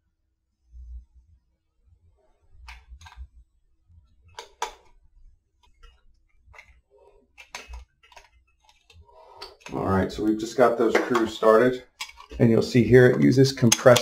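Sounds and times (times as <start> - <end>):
small metal clicks and taps: 13.2 - 14.0.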